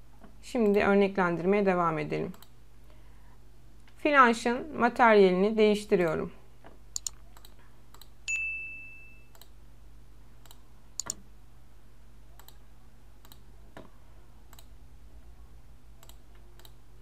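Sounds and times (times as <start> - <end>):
computer mouse clicks: 2.3 - 2.6, 7.0 - 8.2, 10.4 - 11.2, 12.4 - 12.6, 13.2 - 13.5, 14.5 - 14.8, 16.0 - 16.8
short high chime: 8.3 - 9.3.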